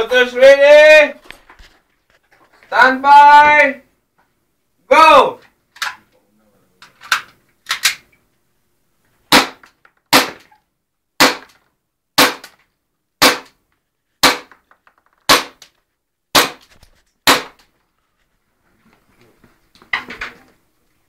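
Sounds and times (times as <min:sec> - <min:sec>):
airsoft pistol shots: 0:09.3 - 0:10.5, 0:11.2 - 0:11.6, 0:12.2 - 0:12.6, 0:13.2 - 0:13.6, 0:14.2 - 0:14.6, 0:15.3 - 0:15.6, 0:16.3 - 0:16.6, 0:17.3 - 0:17.6.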